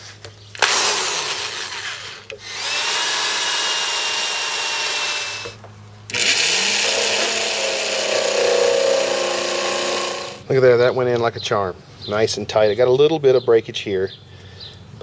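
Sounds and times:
electric drill with hole saw: 0:00.6 - 0:10.4
jigsaw cutting: 0:00.6 - 0:10.4.

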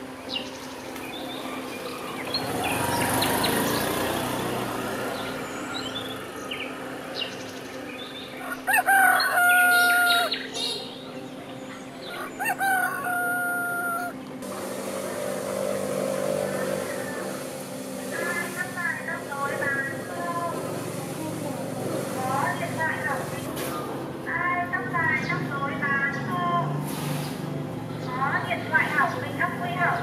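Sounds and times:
small birds chirping: 0:00.0 - 0:14.1
rooster crowing: 0:08.4 - 0:10.4, 0:12.1 - 0:14.2.

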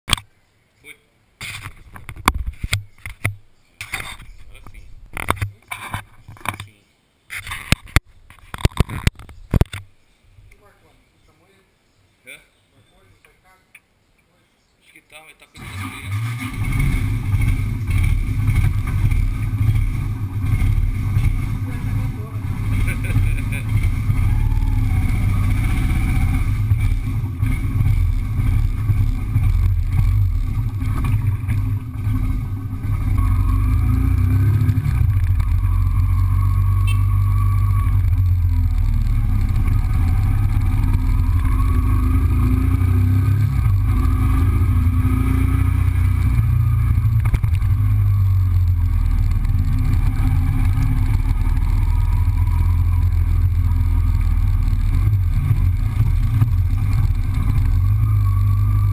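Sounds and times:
motorcycle engine revving: 0:15.6 - 0:58.9.

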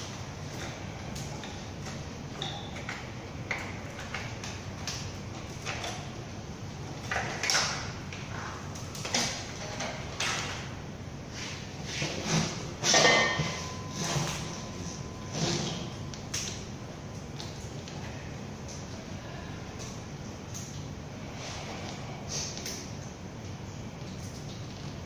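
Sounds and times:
low workshop hum: 0:00.0 - 0:25.0.

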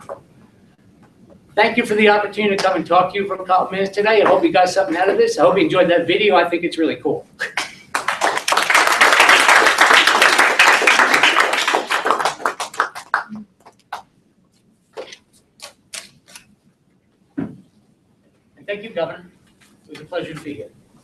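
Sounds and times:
audience applauding: 0:07.4 - 0:14.0.

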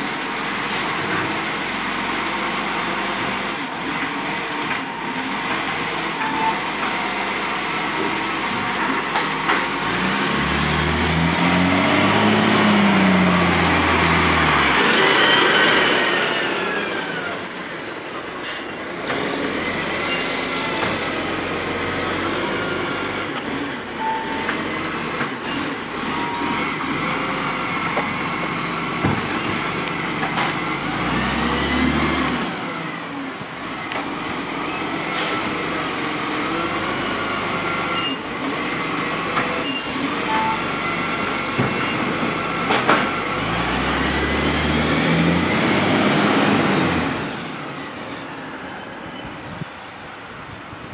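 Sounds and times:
diesel engine whining: 0:00.0 - 0:50.9
air brake hisses: 0:29.4 - 0:29.9, 0:35.1 - 0:35.8, 0:41.7 - 0:42.9.

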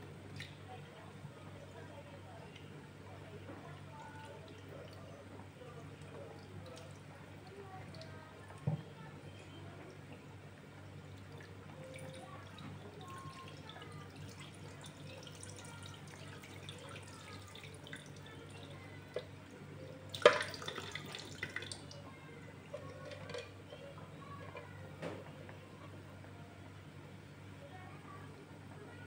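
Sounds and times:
water sloshing in a bowl: 0:02.5 - 0:10.2, 0:11.1 - 0:25.2.

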